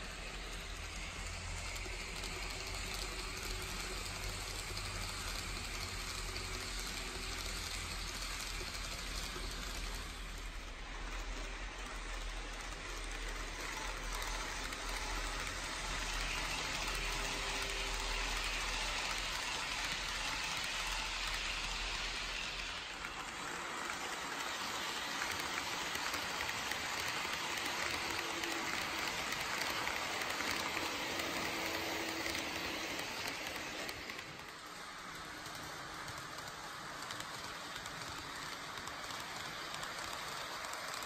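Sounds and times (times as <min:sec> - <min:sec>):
model train wheels rattling: 0:00.0 - 0:41.0.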